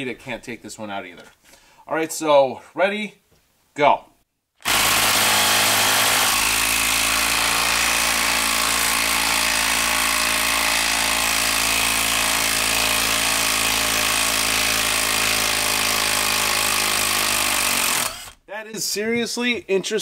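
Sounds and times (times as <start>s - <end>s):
impact driver hammering: 4.6s - 18.4s.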